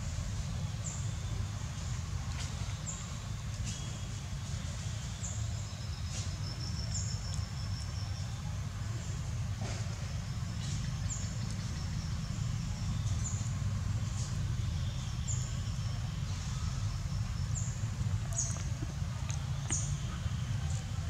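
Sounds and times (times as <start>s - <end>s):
steady low rumble: 6.8s - 21.0s.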